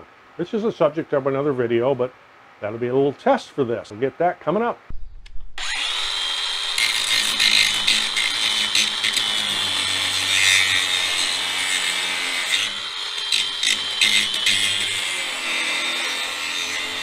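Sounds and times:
angle grinder motor whine: 0:05.6 - 0:17.0
grinder wheel grinding steel: 0:05.6 - 0:17.0.

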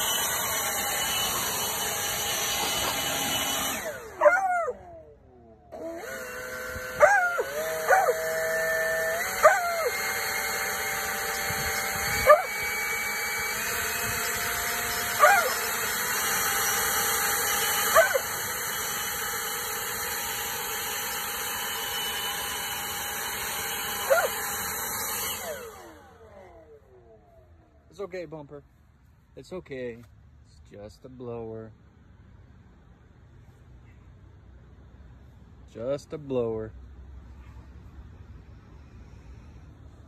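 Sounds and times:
leaf blower motor whining: 0:00.0 - 0:28.8
dog barking: 0:15.2 - 0:15.6, 0:17.9 - 0:18.2, 0:24.1 - 0:24.3.

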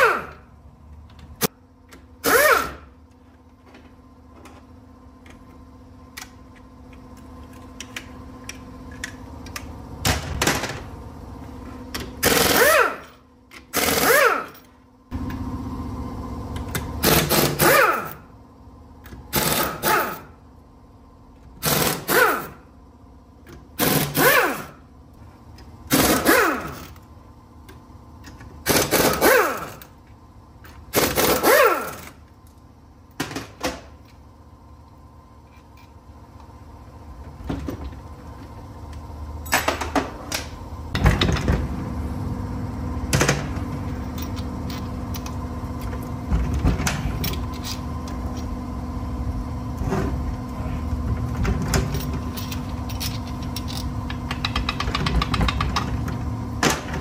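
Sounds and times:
impact wrench bursts: 0:00.0 - 0:00.4, 0:02.2 - 0:02.9, 0:12.2 - 0:14.6, 0:17.0 - 0:18.2, 0:19.3 - 0:20.3, 0:21.6 - 0:22.6, 0:23.8 - 0:24.8, 0:25.9 - 0:27.0, 0:28.6 - 0:29.9, 0:30.9 - 0:32.2
steady machine hum: 0:00.0 - 0:57.0.

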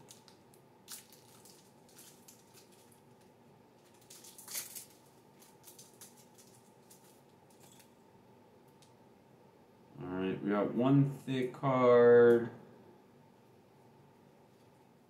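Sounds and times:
wrapper crinkling and tearing: 0:00.0 - 0:07.9
low steady hum: 0:00.0 - 0:15.0.

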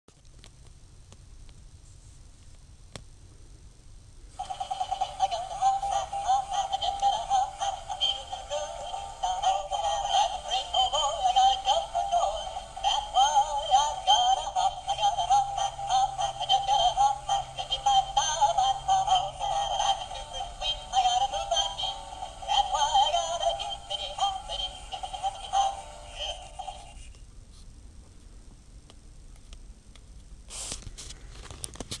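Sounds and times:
toy singing in electronic voice: 0:04.4 - 0:27.1.

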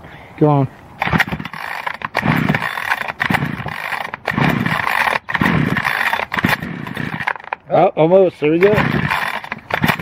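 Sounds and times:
chainsaw recoil starter pulls: 0:01.0 - 0:07.6, 0:08.5 - 0:10.0
engine turning over: 0:01.0 - 0:07.6, 0:08.6 - 0:10.0.

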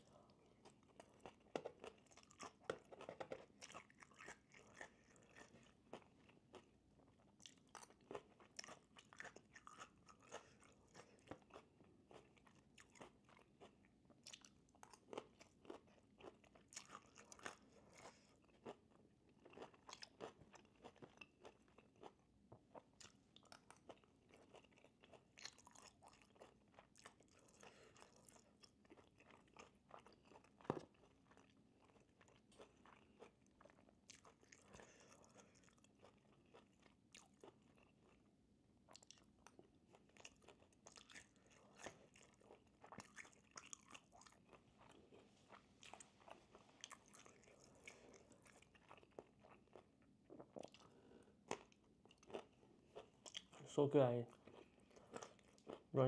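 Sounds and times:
person chewing crunchy vegetables: 0:00.0 - 0:56.0.

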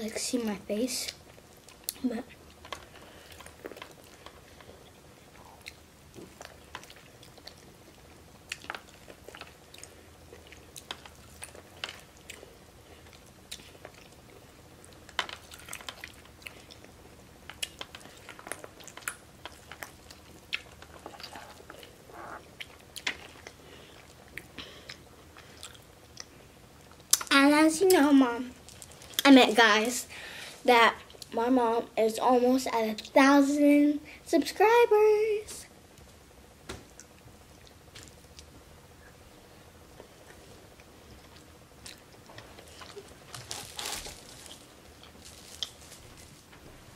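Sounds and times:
chewing corn on the cob: 0:01.6 - 0:27.3.

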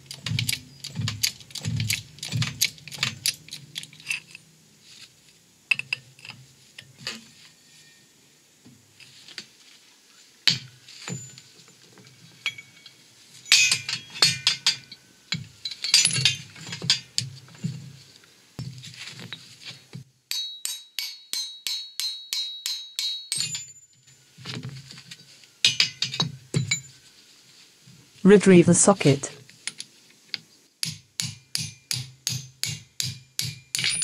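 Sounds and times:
metal parts clinking and knocking: 0:00.0 - 0:04.4, 0:10.5 - 0:17.8, 0:21.8 - 0:23.8, 0:25.6 - 0:26.9, 0:33.4 - 0:34.0.

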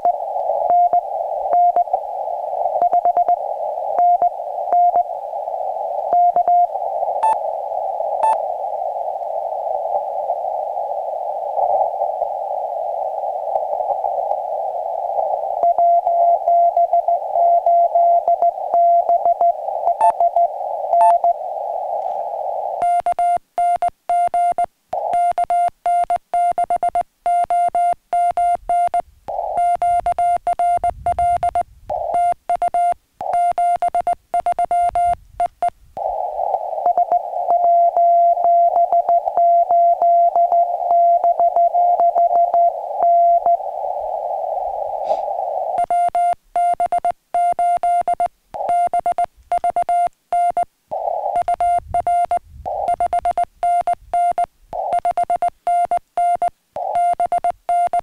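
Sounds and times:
morse code tone: 0:00.0 - 0:01.9, 0:02.8 - 0:03.4, 0:04.0 - 0:05.1, 0:06.1 - 0:07.4, 0:15.6 - 0:21.4, 0:22.8 - 0:36.2, 0:36.8 - 0:43.6, 0:45.8 - 0:58.0
radio receiver hiss: 0:00.0 - 0:58.0.

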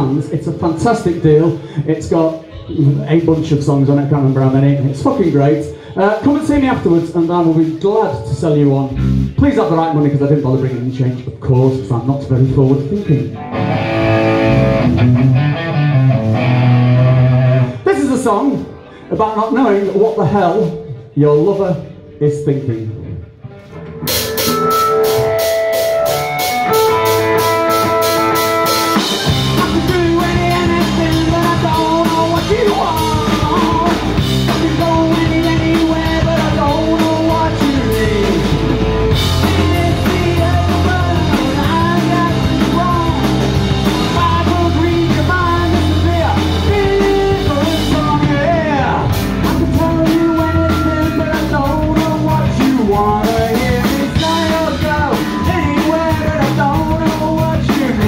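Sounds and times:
man singing: 0:00.0 - 0:13.4, 0:29.2 - 0:58.0
drum kit: 0:00.0 - 0:22.0, 0:23.0 - 0:58.0
bass guitar: 0:00.0 - 0:58.0
electric guitars: 0:12.4 - 0:19.3, 0:23.0 - 0:58.0.

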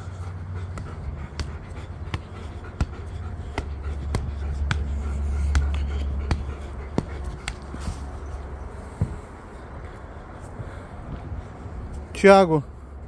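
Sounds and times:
football taps: 0:00.7 - 0:08.0, 0:08.9 - 0:09.2.

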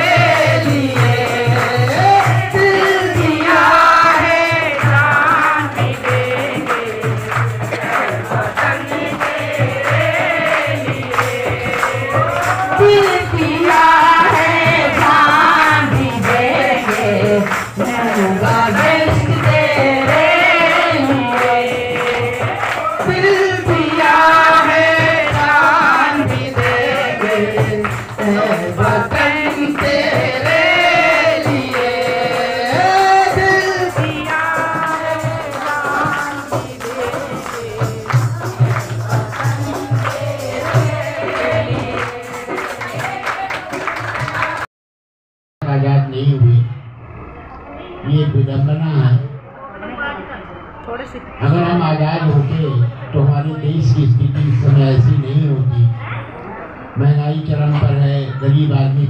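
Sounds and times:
tambourine beat: 0:00.0 - 0:44.6
voices singing together: 0:00.0 - 0:44.7.

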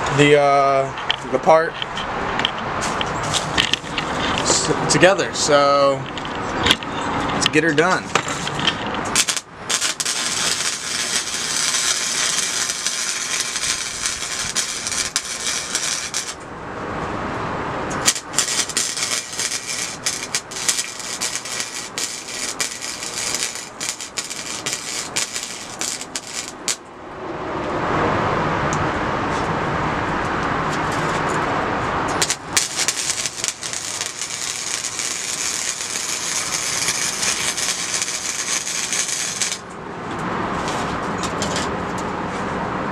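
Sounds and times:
steady rushing hiss: 0:00.0 - 0:16.6, 0:17.6 - 0:26.9, 0:31.0 - 0:41.8
welder crackling: 0:05.9 - 0:16.5, 0:17.9 - 0:26.9, 0:32.1 - 0:39.8.

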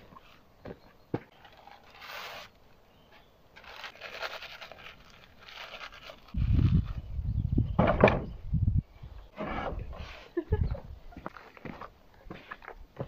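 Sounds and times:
paper rustling and crumpling: 0:03.6 - 0:07.0.

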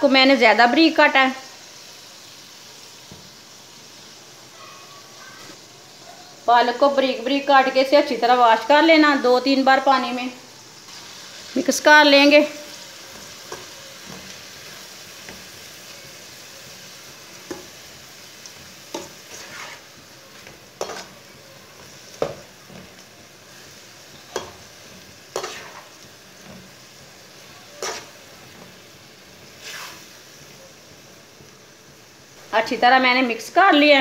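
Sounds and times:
food sizzling: 0:00.0 - 0:34.0
spoon scraping metal pan: 0:18.9 - 0:23.0, 0:24.2 - 0:26.6, 0:27.6 - 0:28.3, 0:29.5 - 0:30.1.

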